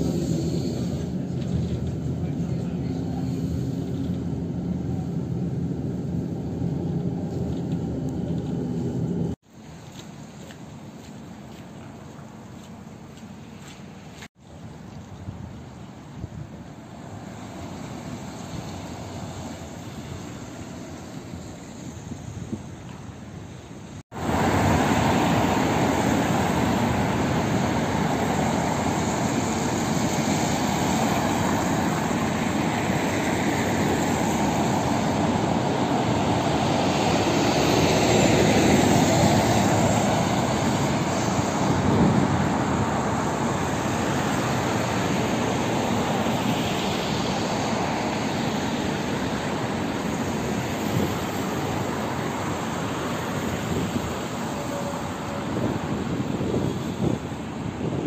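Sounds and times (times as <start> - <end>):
road traffic rushing: 0.0 - 9.4, 16.6 - 58.0.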